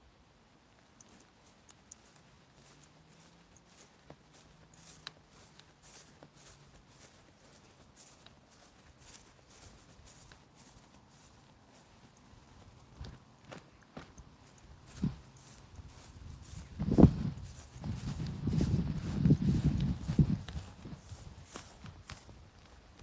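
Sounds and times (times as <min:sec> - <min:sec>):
footsteps on grass: 0:00.4 - 0:23.0.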